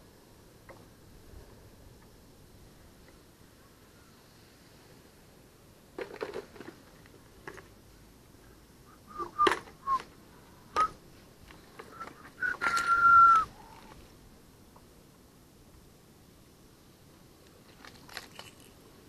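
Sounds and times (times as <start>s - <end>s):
rustling: 9.1s - 14.2s, 17.4s - 19.0s.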